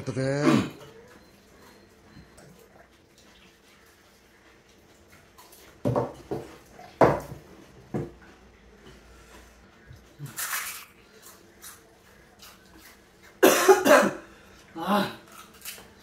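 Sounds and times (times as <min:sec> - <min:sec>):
crunches and slurps of eating: 0:10.0 - 0:13.4.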